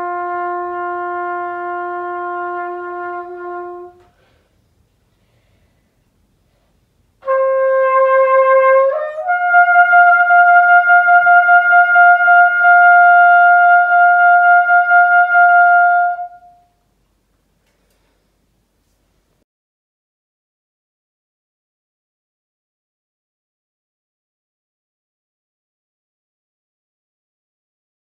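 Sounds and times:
cornet playing held notes: 0.0 - 4.2, 7.2 - 16.8.

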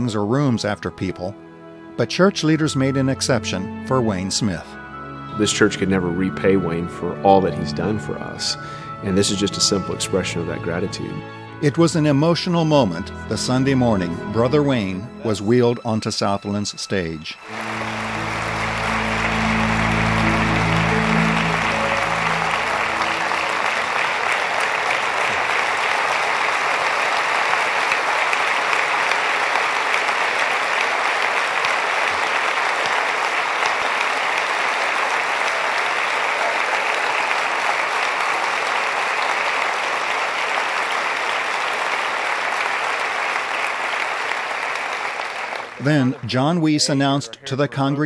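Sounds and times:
soft background music: 0.0 - 24.4
congregation clapping: 17.4 - 47.2.

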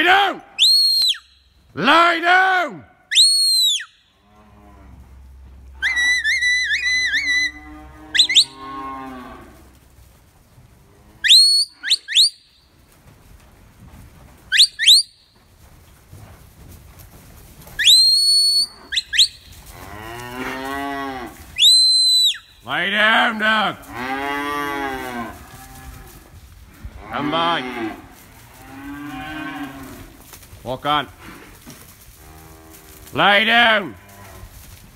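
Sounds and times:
warbling shepherd whistle: 0.6 - 1.4, 3.1 - 4.0, 8.2 - 8.6, 11.2 - 12.5, 14.5 - 15.2, 17.8 - 19.5, 21.6 - 22.5
cattle mooing: 5.8 - 9.6, 19.8 - 21.4, 22.9 - 26.2, 26.9 - 30.1
short sharp rising whistles: 21.6 - 22.5.

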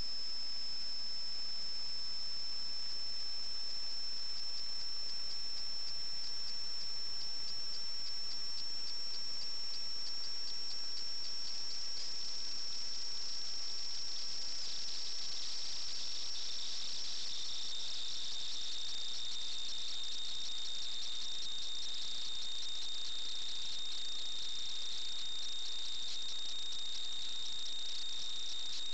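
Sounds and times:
high-pitched whine: 0.0 - 18.8.

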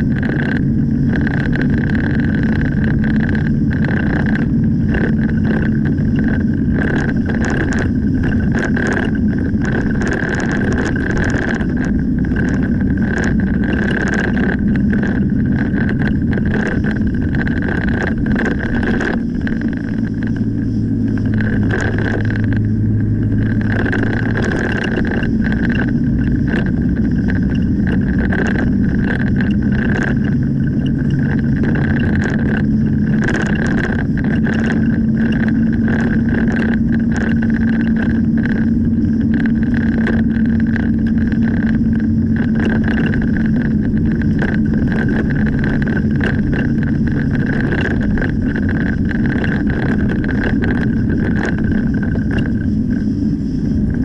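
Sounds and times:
car engine and tyre noise: 0.0 - 54.0
small ticks and rattles: 0.0 - 54.0
steady high whine: 0.0 - 54.0.

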